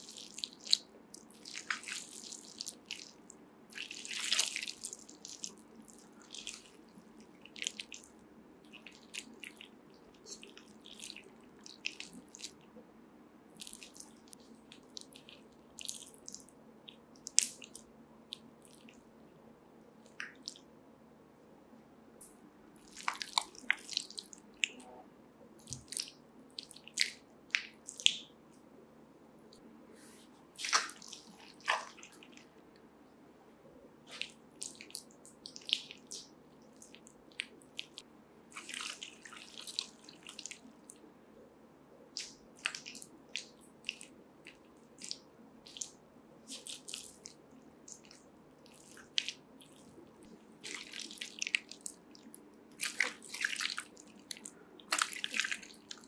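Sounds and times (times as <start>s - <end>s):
wet clay squelching under hand: 0.0s - 8.1s, 22.8s - 24.8s, 25.6s - 28.3s, 30.6s - 32.5s, 34.1s - 40.7s, 42.2s - 50.0s, 50.6s - 56.0s.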